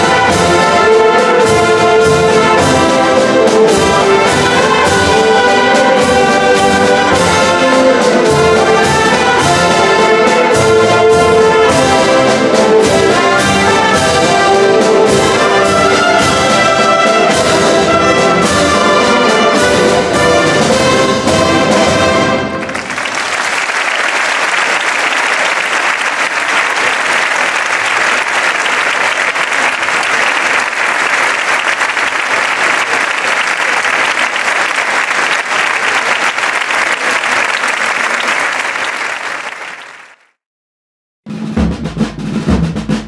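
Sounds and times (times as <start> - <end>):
brass band playing march: 0.0 - 40.0
audience applauding: 22.5 - 40.4.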